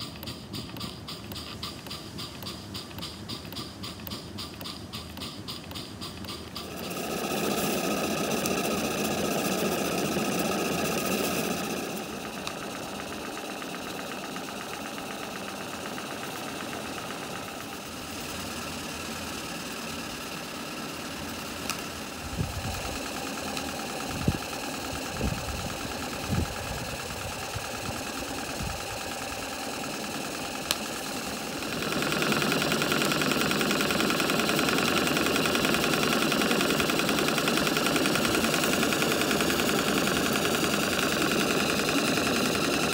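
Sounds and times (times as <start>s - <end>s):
model steam engine running: 0.0s - 42.9s.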